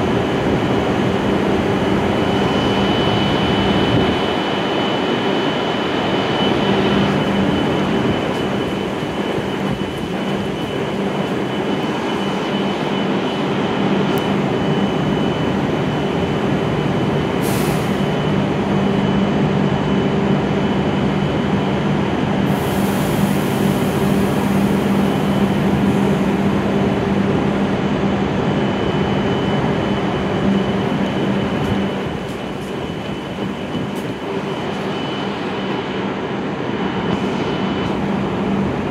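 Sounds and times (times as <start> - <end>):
train equipment humming and whining: 0.0 - 38.9
air hiss: 17.4 - 18.1, 22.5 - 24.9.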